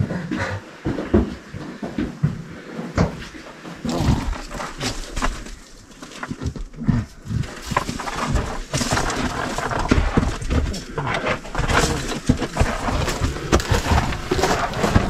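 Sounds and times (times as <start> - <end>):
person grunting: 3.8 - 4.5
rock rubble crunching and clattering: 3.9 - 15.0.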